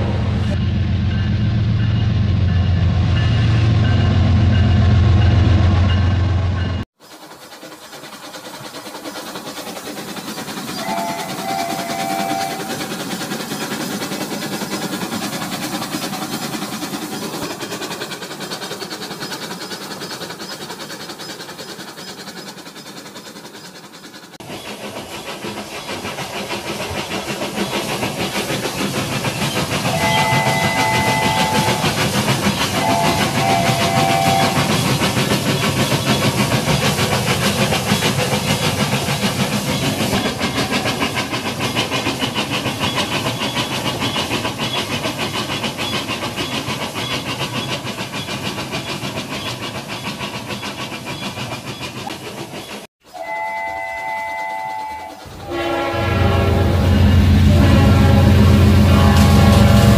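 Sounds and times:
toy train rattling on track: 7.0s - 55.8s
toy train whistle: 10.8s - 12.8s, 29.9s - 32.0s, 32.8s - 34.7s, 53.0s - 59.9s.

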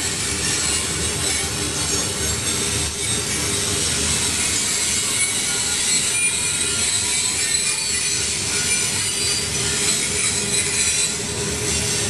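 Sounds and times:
high-pitched wheel squeal: 0.0s - 12.0s
train wheels rumbling on rails: 0.0s - 12.0s.

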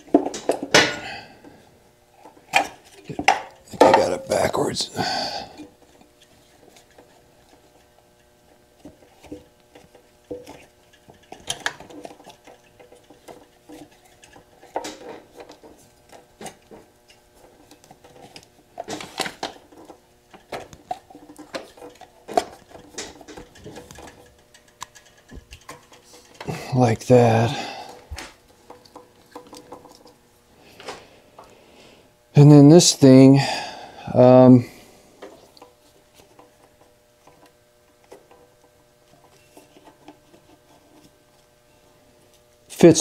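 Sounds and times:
plastic and metal parts clattering: 0.0s - 1.0s, 8.8s - 26.8s, 27.4s - 30.2s.

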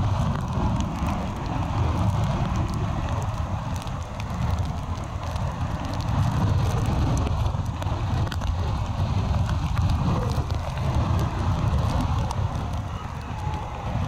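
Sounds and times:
breaking surf: 0.0s - 14.0s
storm wind: 0.0s - 14.0s
wind rumble on microphone: 0.0s - 14.0s.

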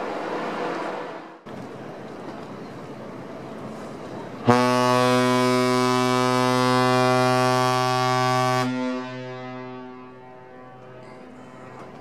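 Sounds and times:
steady background noise: 0.0s - 12.0s
deep ship horn blast: 4.4s - 11.6s.

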